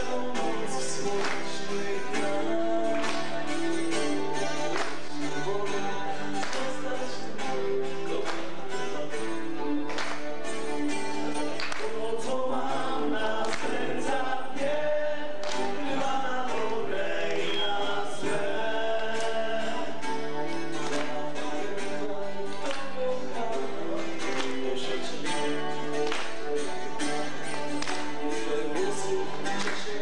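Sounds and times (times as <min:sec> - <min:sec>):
voices singing in harmony: 0:00.0 - 0:09.1, 0:11.7 - 0:30.0
strummed acoustic guitar: 0:00.0 - 0:30.0.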